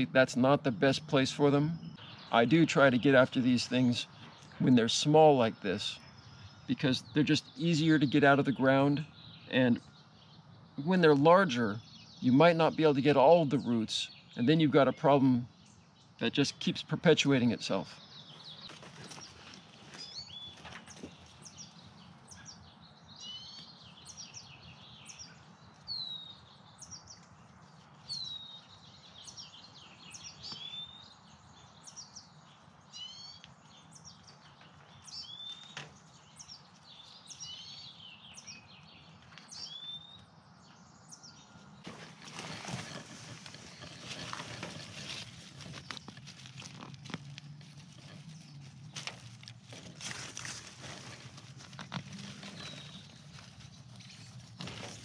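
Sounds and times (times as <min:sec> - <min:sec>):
birds chirping: 0:00.0 - 0:55.0
rustling of dry needles: 0:41.8 - 0:55.0.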